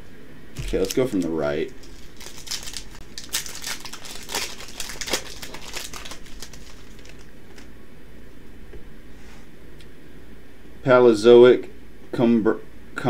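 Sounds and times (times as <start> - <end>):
foil wrapper crinkling: 0.6 - 7.7.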